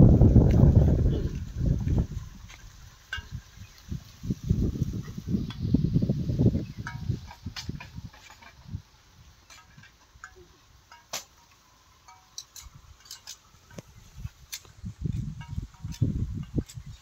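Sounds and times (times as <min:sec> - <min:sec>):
metal parts clicking and clinking: 0:06.8 - 0:08.7, 0:09.5 - 0:13.9.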